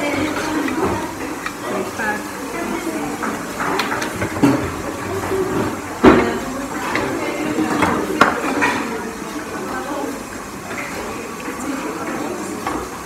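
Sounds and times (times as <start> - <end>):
background chatter: 0.0 - 13.0
clatter of pots and pans: 3.2 - 9.0.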